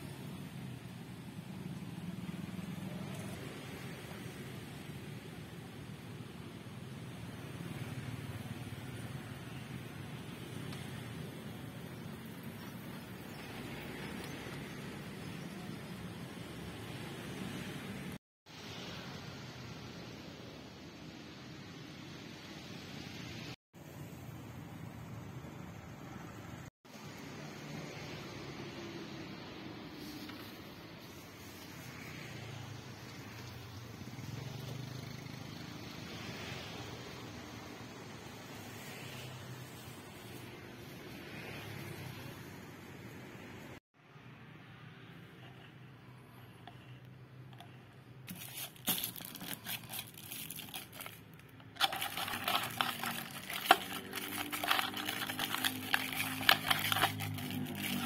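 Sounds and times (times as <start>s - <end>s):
faint street ambience: 0.0s - 58.0s
traffic engine hum: 44.0s - 58.0s
plastic straw wrapper crinkling: 48.3s - 58.0s
vehicle passing: 48.3s - 58.0s.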